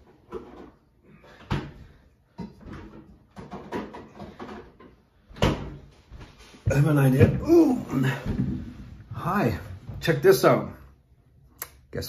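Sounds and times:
knocks and clunks of household things: 0:00.0 - 0:09.0.

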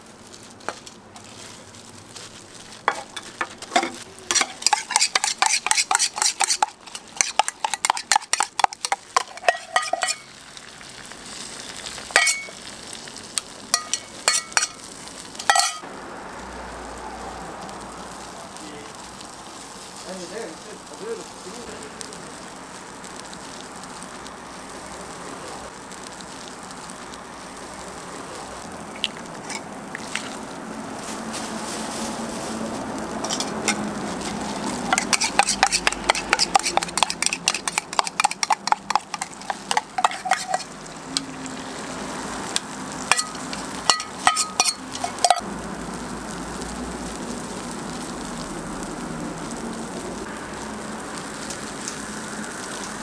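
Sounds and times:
batter sizzling on griddle: 0:00.0 - 0:53.0
metal spoon clinking against cup: 0:03.8 - 0:10.3, 0:12.2 - 0:12.6, 0:15.4 - 0:15.8, 0:34.9 - 0:40.7, 0:43.1 - 0:45.4.

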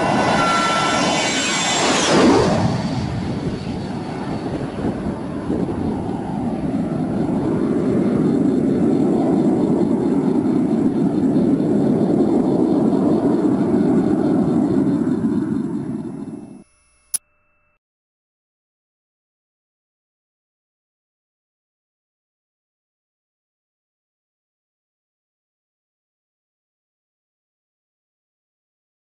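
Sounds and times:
airplane engine passing overhead: 0:00.0 - 0:16.6.

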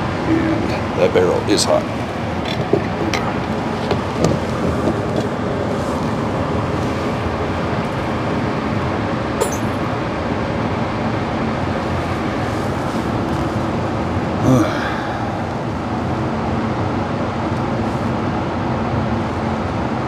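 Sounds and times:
rumbling machinery and moving air: 0:00.0 - 0:20.0.

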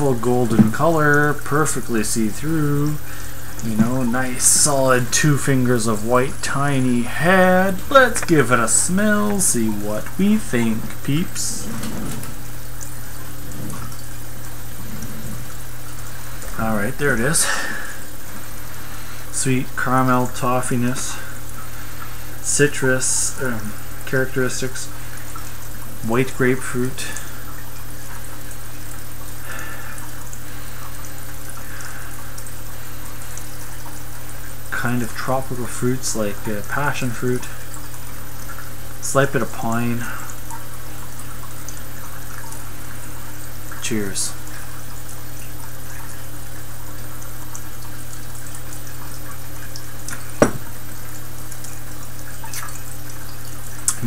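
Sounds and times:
low electrical hum: 0:00.0 - 0:54.0
glass set down on table: 0:50.4 - 0:50.7.

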